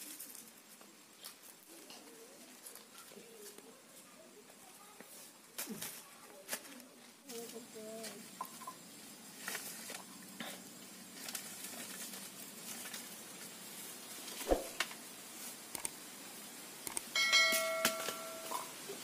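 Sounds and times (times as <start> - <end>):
sticks clattering and scraping: 5.0 - 15.6, 16.9 - 18.8.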